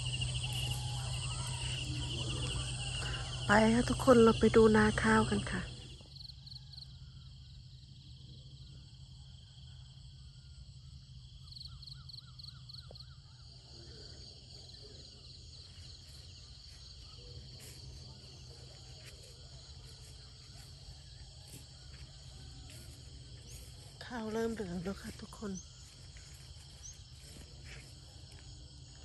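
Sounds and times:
footsteps through grass: 0:00.0 - 0:02.2, 0:15.6 - 0:29.0
crickets and insects chirping: 0:00.0 - 0:29.0
insect trill: 0:00.0 - 0:29.0.

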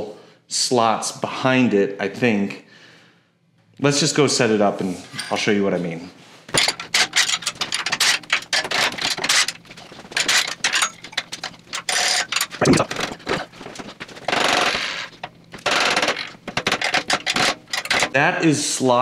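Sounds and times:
metal parts clanking: 0:06.5 - 0:18.2
steel axle scraping: 0:06.5 - 0:18.2.

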